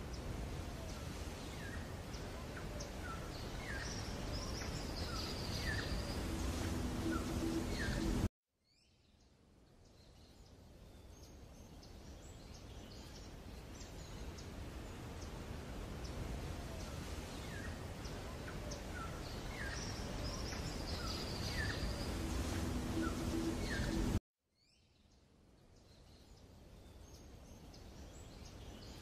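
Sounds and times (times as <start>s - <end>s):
birds chirping: 0.0s - 8.3s, 11.0s - 24.2s
wind-like background rush: 0.0s - 8.3s, 9.9s - 24.2s.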